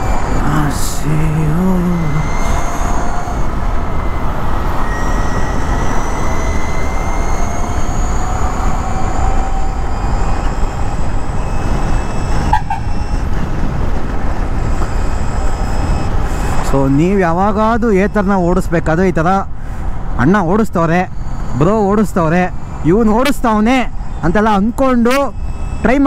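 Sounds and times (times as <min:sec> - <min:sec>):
wind rush on microphone: 0:00.0 - 0:16.7
electric motor whine: 0:01.0 - 0:12.4.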